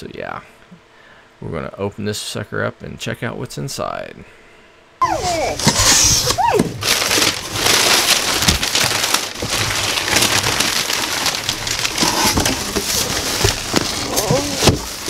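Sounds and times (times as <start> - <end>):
packing paper rustling and crackling: 5.0 - 15.0.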